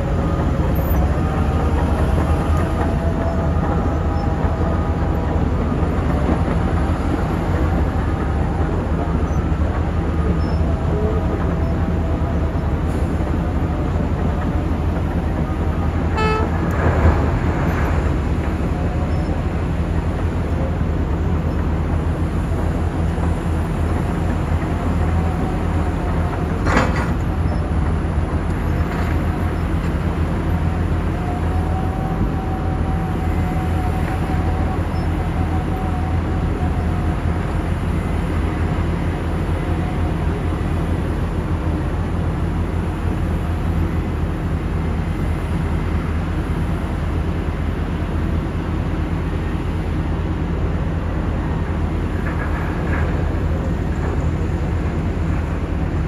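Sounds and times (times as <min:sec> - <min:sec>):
diesel engines droning: 0:00.0 - 0:56.0
short horn toot: 0:16.2 - 0:16.6.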